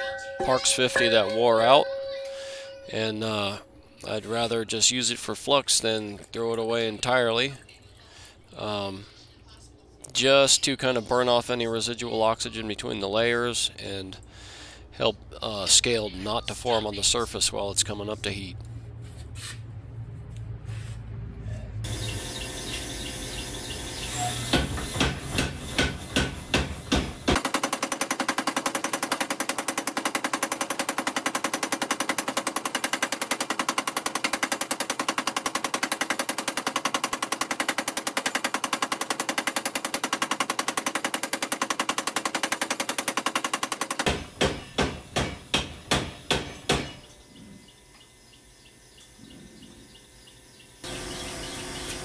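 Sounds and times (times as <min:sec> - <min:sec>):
power hammer striking hot metal: 0:24.4 - 0:27.8, 0:39.3 - 0:47.1.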